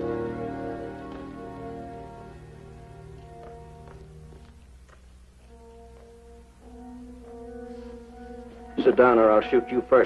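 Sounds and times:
low brass sustained chords: 0.0 - 4.4, 5.5 - 10.0.

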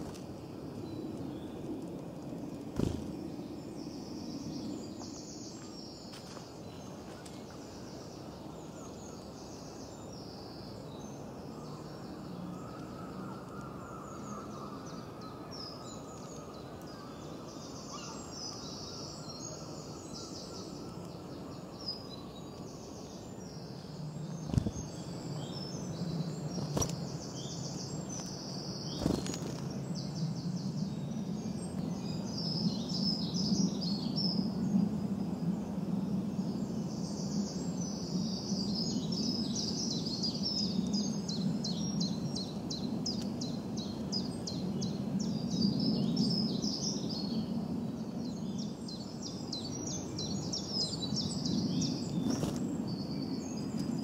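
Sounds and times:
songbirds singing: 0.0 - 54.0
steady low rumble: 23.6 - 30.7.

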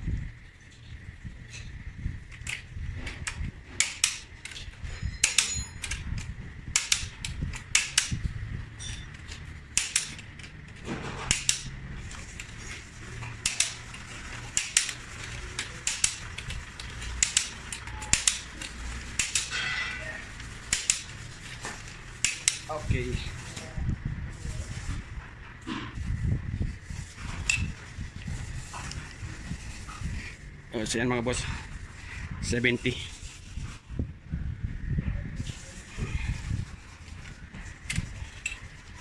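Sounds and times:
torque wrench clicking: 3.2 - 8.2, 8.8 - 12.7, 13.3 - 19.6, 20.7 - 21.2, 22.2 - 22.7.

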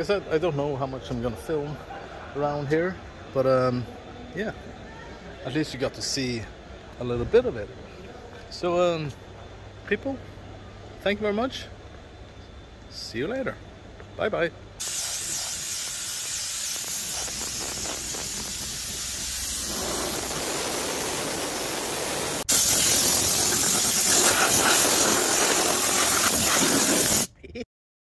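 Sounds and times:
pressure washer spraying water: 14.8 - 27.3.

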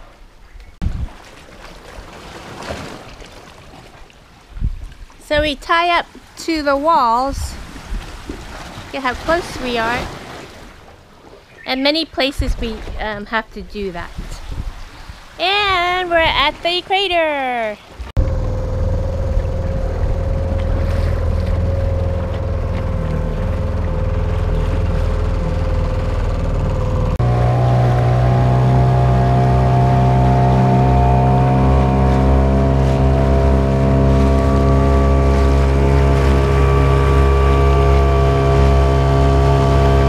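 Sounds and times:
boat engine running: 5.0 - 14.2, 15.4 - 40.0.

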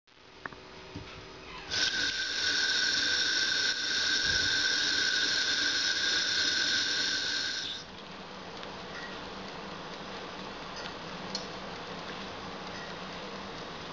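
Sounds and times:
tap water pouring into a pot: 1.7 - 7.8.

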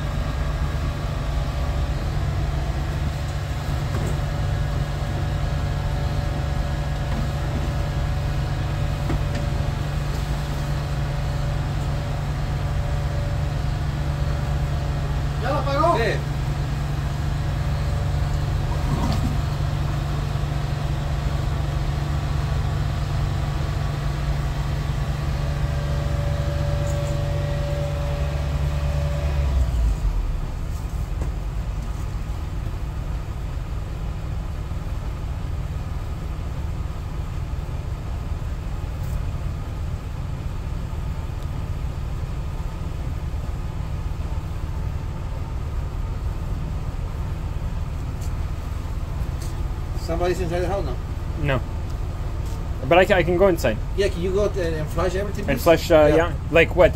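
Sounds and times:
engine and pump droning: 0.0 - 56.9.

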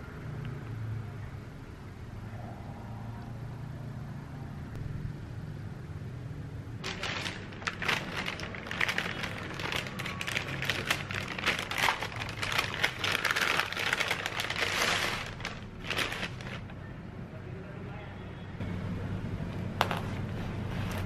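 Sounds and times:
paper bag crinkling and rustling: 6.8 - 16.8.

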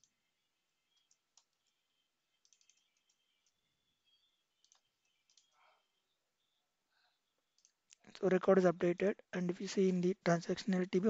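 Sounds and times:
mouse clicks: 2.4 - 3.6, 4.6 - 5.6.

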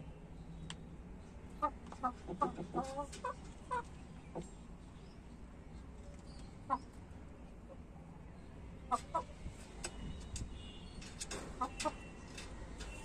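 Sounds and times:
chickens clucking: 1.5 - 4.8, 5.8 - 7.9, 8.8 - 13.0.

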